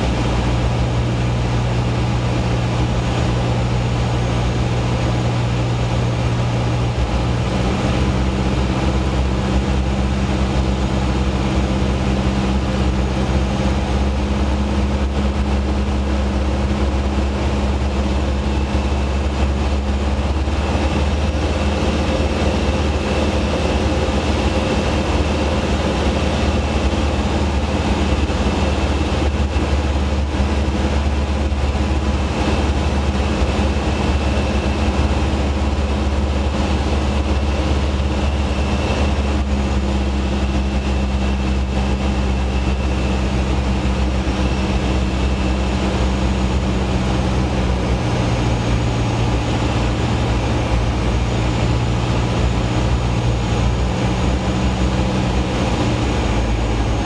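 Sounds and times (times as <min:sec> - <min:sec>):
aircraft engine and propeller droning: 0:00.0 - 0:57.0.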